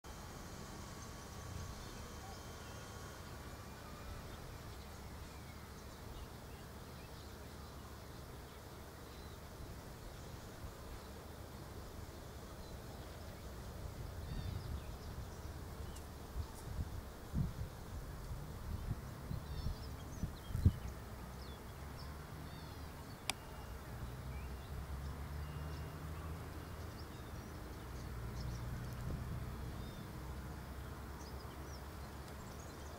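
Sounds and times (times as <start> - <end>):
faint high chirps: 0.1 - 7.4, 22.5 - 24.7
small birds chirping: 0.1 - 32.9.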